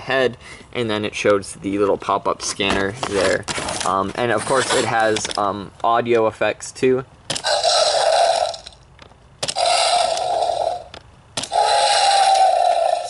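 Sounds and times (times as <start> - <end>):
toy electronic chomp sounds: 7.3 - 8.7, 9.4 - 13.0.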